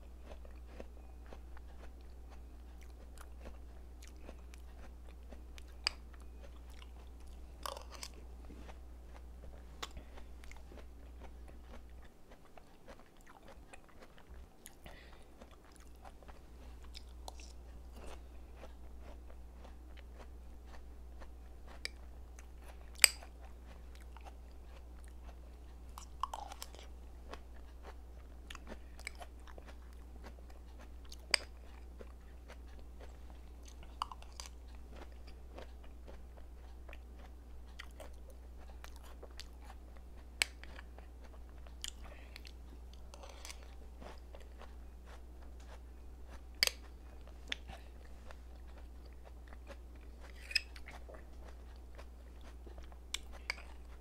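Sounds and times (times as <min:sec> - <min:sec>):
chewing and mouth smacks: 0:00.2 - 0:54.0.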